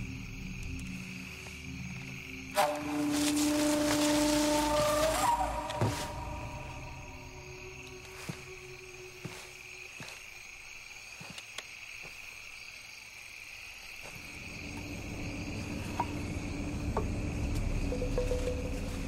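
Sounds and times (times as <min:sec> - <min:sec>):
insects chirping: 0:00.0 - 0:19.0
low rumble: 0:14.4 - 0:19.0.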